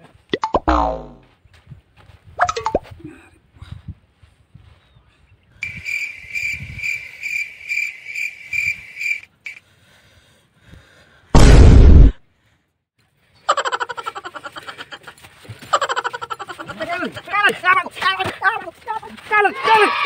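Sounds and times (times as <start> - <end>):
cricket chirping: 5.6 - 9.6
loud burst of noise: 11.4 - 12.1.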